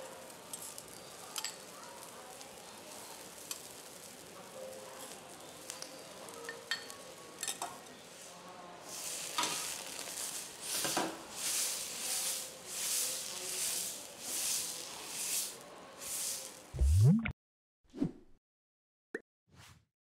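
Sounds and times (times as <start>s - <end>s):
metal spatula scraping griddle: 8.9s - 15.6s
short rising whoosh: 16.8s - 17.3s.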